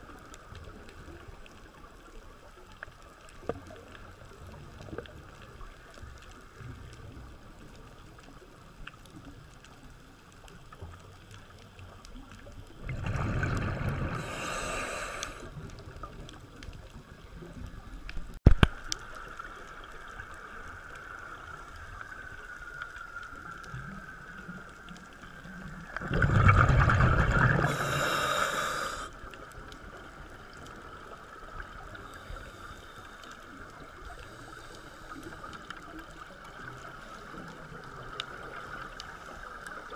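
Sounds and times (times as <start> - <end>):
diver's breath bubbling underwater: 12.8 - 15.6, 26.0 - 29.1.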